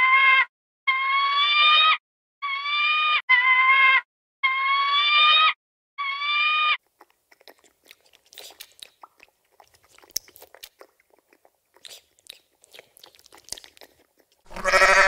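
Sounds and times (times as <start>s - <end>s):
fish sucking at water surface: 7.0s - 14.5s
hawk screeching: 14.5s - 15.0s.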